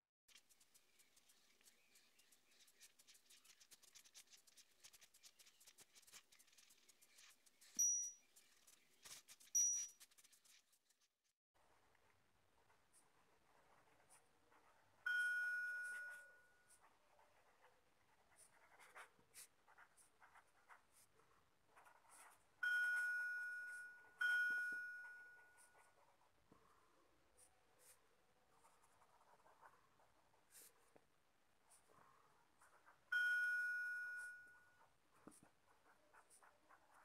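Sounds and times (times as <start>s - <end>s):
pen scratching on paper: 0.3s - 15.0s, 15.8s - 22.6s, 25.0s - 33.1s, 34.2s - 37.0s
bell-like dings: 7.8s - 8.2s, 9.6s - 10.0s, 15.1s - 16.6s, 22.6s - 25.7s, 33.1s - 34.8s.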